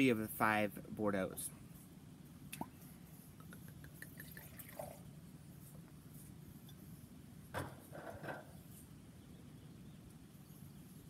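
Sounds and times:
wine trickling into glass: 0:04.0 - 0:05.0.

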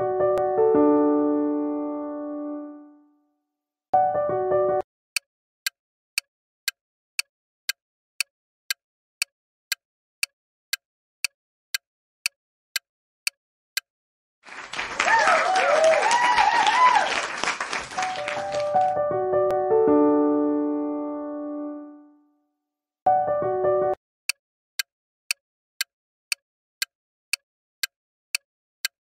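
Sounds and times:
piano tune: 0:00.0 - 0:03.2, 0:04.0 - 0:04.8, 0:17.8 - 0:22.3, 0:23.1 - 0:24.0
clock ticking: 0:05.2 - 0:13.9, 0:24.3 - 0:29.0
applause with cheering: 0:14.4 - 0:19.0.

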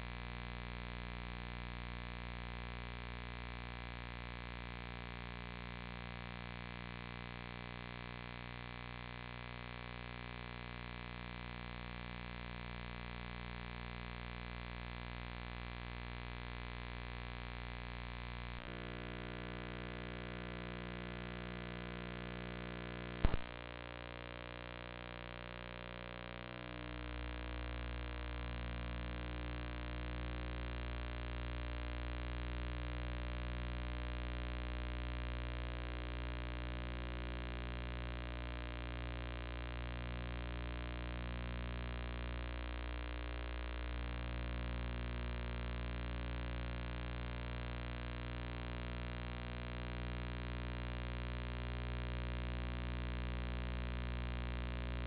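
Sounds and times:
electrical hum: 0:17.2 - 0:38.7
sharp click: 0:23.2 - 0:23.6.

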